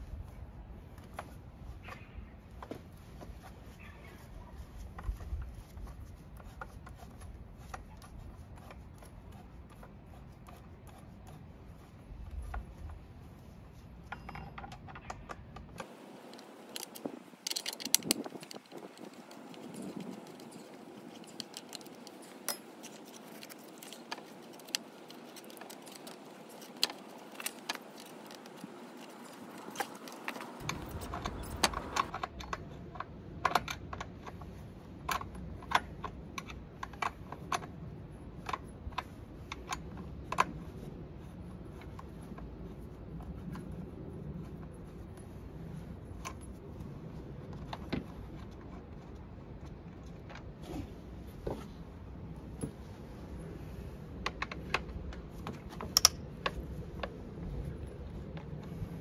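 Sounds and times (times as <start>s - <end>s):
metal tool clicking on engine housing: 55.9s - 56.2s.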